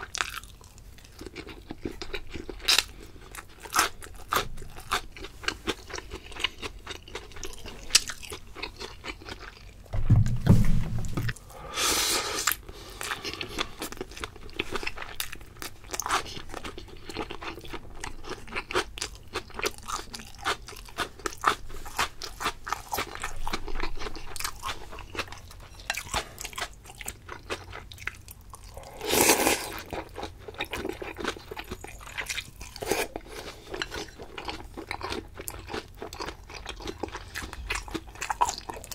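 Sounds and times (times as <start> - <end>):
person chewing: 0.0 - 9.8, 12.2 - 38.9
low thump: 9.9 - 11.4.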